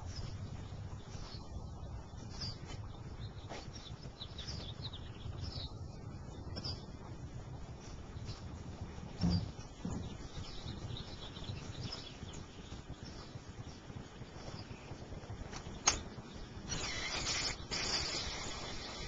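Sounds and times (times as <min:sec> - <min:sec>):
rustling hiss: 0:10.4 - 0:19.0
sharp click: 0:15.6 - 0:16.1.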